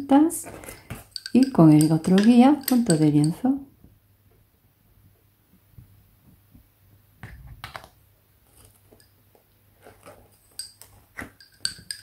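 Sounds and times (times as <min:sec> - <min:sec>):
lace bobbins clicking: 0:00.4 - 0:03.5, 0:10.6 - 0:12.0.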